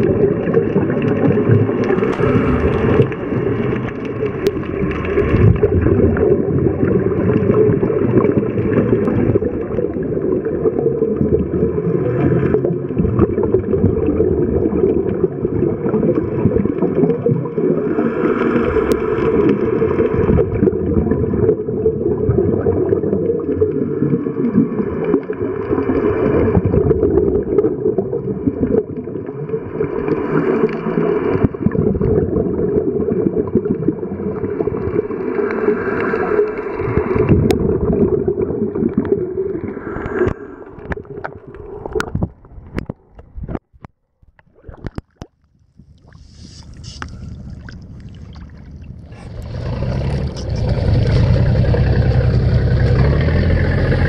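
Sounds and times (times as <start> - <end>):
regulator exhaust bubbles: 0.0 - 17.9, 44.7 - 54.0
underwater low rumble: 0.0 - 54.0.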